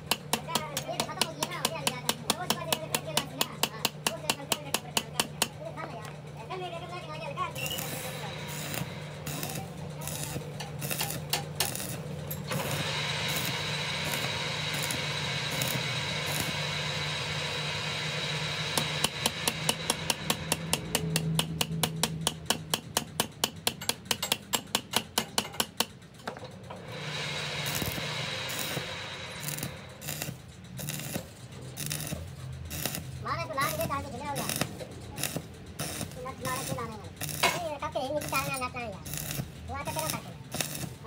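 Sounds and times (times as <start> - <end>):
hammer striking metal: 0.0 - 6.2, 7.5 - 41.0
low hum: 5.5 - 23.4, 26.1 - 41.0
steady hiss: 7.6 - 21.1, 26.8 - 33.1.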